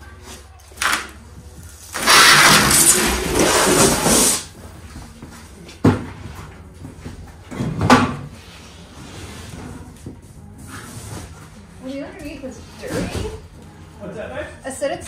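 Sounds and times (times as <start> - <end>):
cardboard scraping on concrete: 1.8 - 4.5, 8.4 - 11.6.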